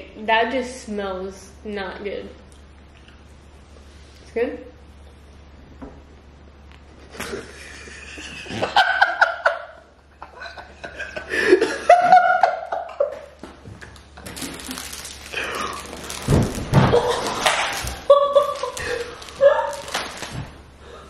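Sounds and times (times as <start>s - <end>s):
people laughing: 7.0s - 13.3s, 16.9s - 20.0s.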